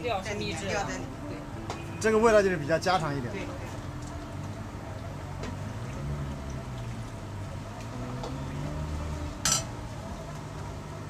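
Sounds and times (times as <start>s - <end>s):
sauce simmering: 3.8s - 11.0s.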